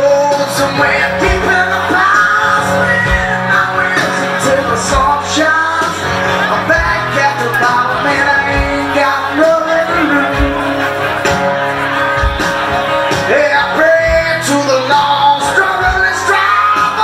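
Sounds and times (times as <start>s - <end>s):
strummed acoustic guitar: 0.0s - 17.0s.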